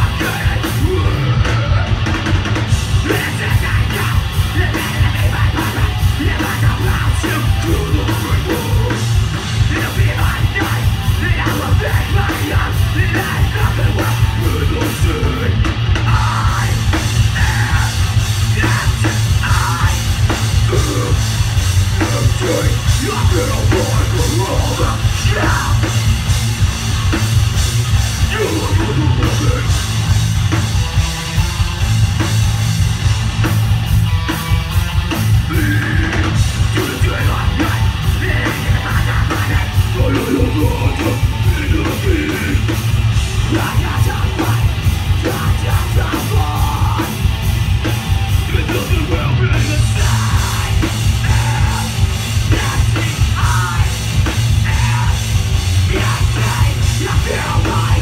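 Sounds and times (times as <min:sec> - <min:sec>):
distorted electric guitar: 0:00.0 - 0:58.0
drum kit: 0:00.0 - 0:58.0.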